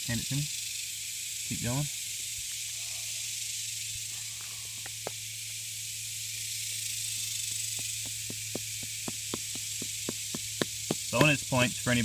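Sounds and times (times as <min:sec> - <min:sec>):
steady high hiss: 0:00.0 - 0:12.0
hammer tapping rock: 0:07.7 - 0:11.5.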